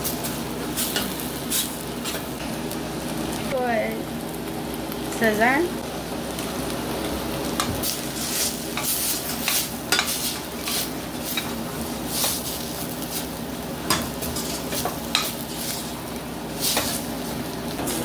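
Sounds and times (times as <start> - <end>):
food sizzling in pan: 0.0 - 18.0.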